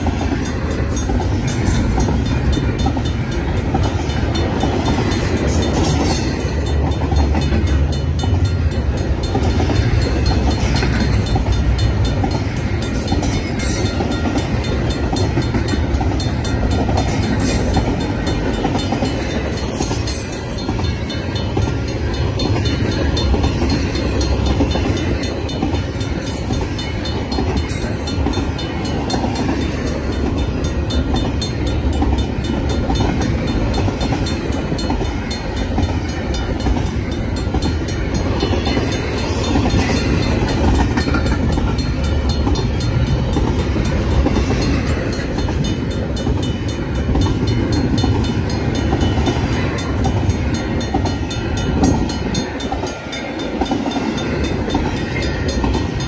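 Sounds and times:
freight train rolling past: 0:00.0 - 0:56.0.

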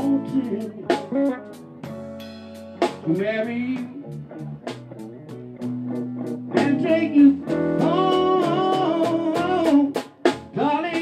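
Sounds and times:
person singing: 0:00.0 - 0:01.7, 0:02.9 - 0:04.3, 0:06.5 - 0:11.0
bass guitar: 0:00.0 - 0:11.0
drums: 0:00.0 - 0:11.0
electric guitar: 0:00.0 - 0:11.0.

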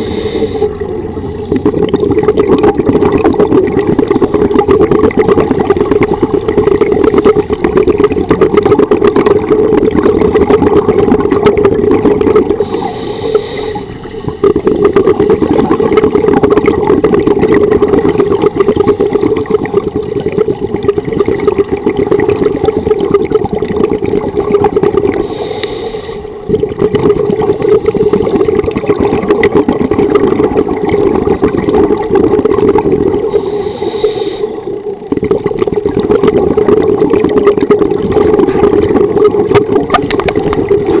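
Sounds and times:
underwater scuba breathing bubbles: 0:00.0 - 0:41.0
regulator hiss: 0:12.6 - 0:14.2, 0:25.2 - 0:26.4, 0:33.2 - 0:35.0.

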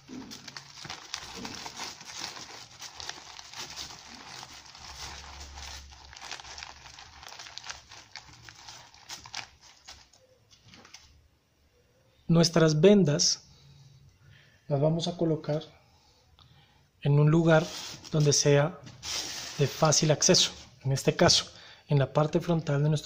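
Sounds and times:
nylon pouch rustling: 0:00.0 - 0:11.0
plastic packets crinkling: 0:00.0 - 0:11.1.

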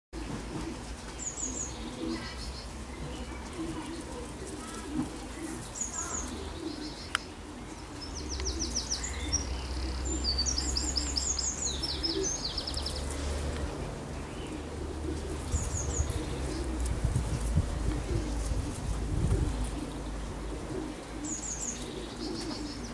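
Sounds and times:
songbirds chirping: 0:00.2 - 0:22.9
low steady rumble: 0:08.2 - 0:22.1.

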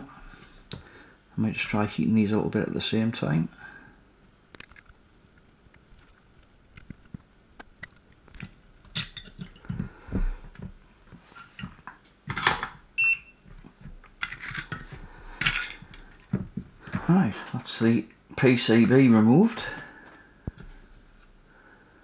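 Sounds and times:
tools tapping and scraping plastic: 0:13.6 - 0:16.7.

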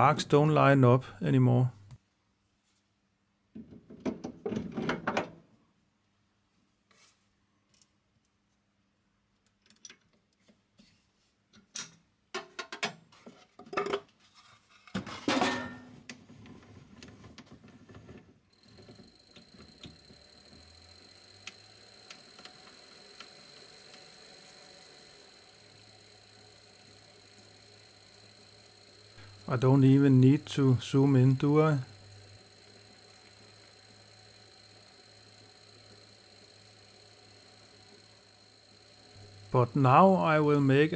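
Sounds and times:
lathe humming and whining: 0:18.6 - 0:40.9.

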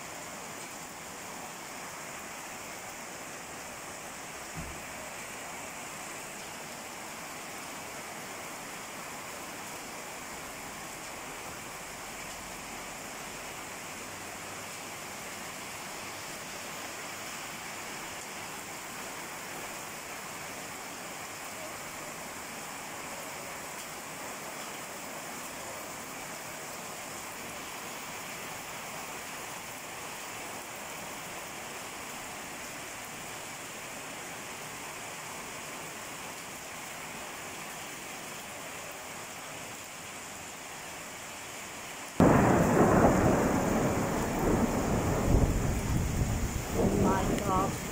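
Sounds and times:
heavy rain falling: 0:00.0 - 0:47.9.

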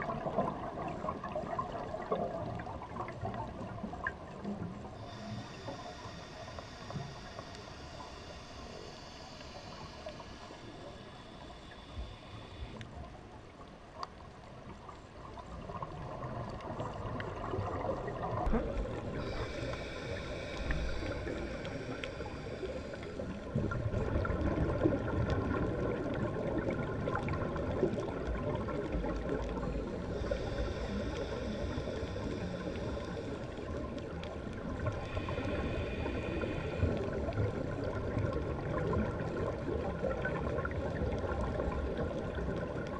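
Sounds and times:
gurgling exhaled bubbles: 0:00.0 - 0:05.8, 0:15.3 - 0:42.9
regulator hiss on inhale: 0:04.4 - 0:13.1, 0:18.2 - 0:25.6, 0:28.8 - 0:38.6.

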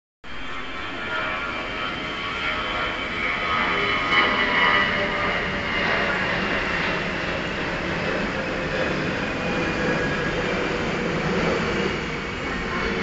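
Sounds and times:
electric train approaching: 0:04.8 - 0:13.0.

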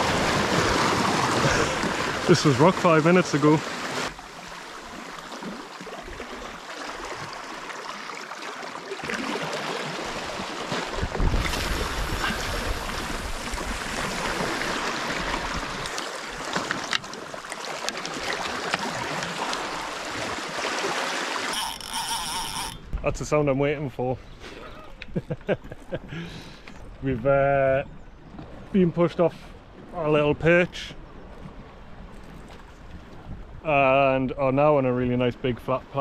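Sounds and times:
sea water washing over rocks: 0:00.0 - 0:21.8.

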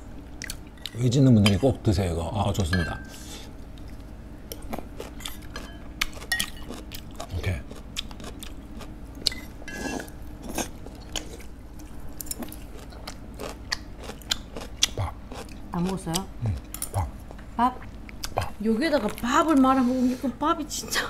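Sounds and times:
chewing: 0:03.8 - 0:09.4, 0:10.0 - 0:19.7.

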